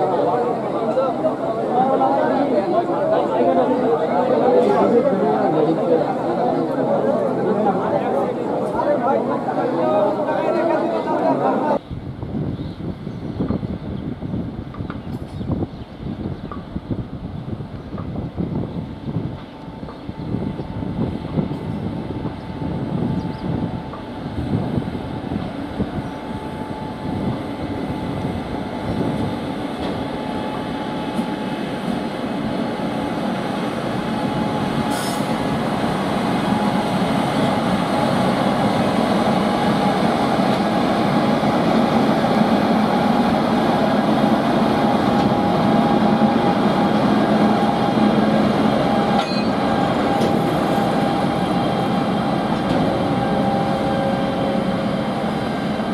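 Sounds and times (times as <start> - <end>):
rolling train wheels: 13.4 - 55.9
locomotive whine: 17.1 - 55.9.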